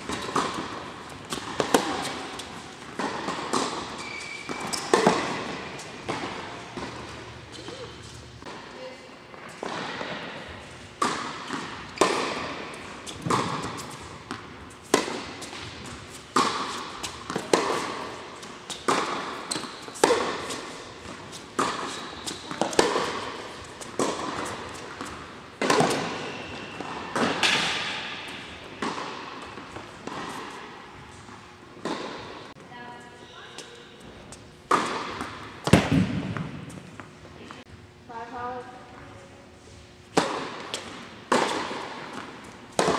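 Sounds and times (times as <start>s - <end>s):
tennis ball bouncing on court: 0.0s - 8.7s, 9.3s - 30.8s, 31.8s - 32.5s, 34.7s - 37.6s, 40.1s - 42.9s
tennis ball hit by racquets: 0.0s - 8.7s, 9.6s - 30.9s, 31.8s - 32.5s, 34.7s - 37.6s, 40.1s - 42.9s.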